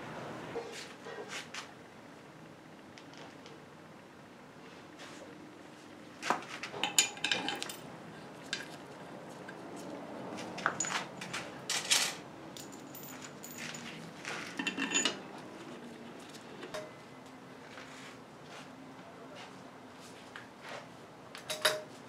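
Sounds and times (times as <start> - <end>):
steel hardware clinking: 6.8 - 7.9, 10.6 - 15.2.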